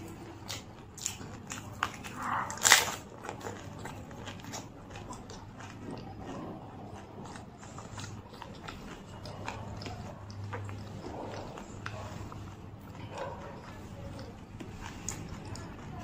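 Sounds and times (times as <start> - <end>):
wet crackling chewing: 0.0 - 16.0
crisp shell crunch: 0.4 - 6.4.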